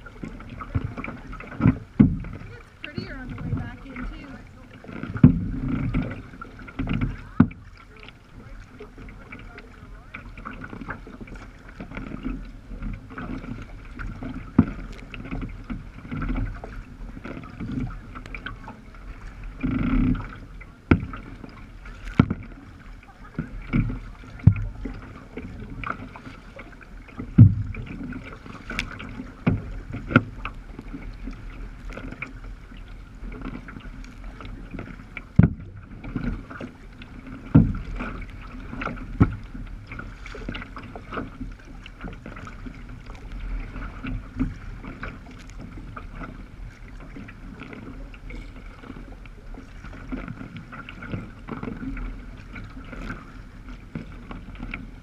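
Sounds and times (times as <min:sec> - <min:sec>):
water washing along kayak hull: 0:00.0 - 0:55.0
waves slapping the bow: 0:00.0 - 0:55.0.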